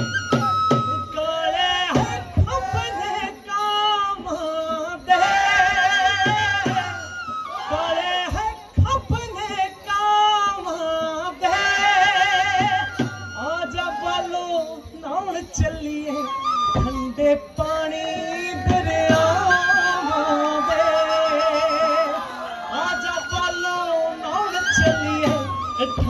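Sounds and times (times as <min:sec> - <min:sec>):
drum beat: 0:00.0 - 0:13.9.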